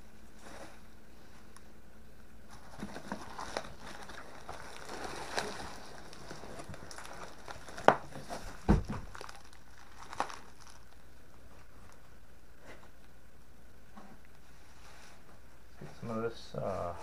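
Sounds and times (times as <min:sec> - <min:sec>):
bubble wrap crinkling: 0:02.4 - 0:13.1.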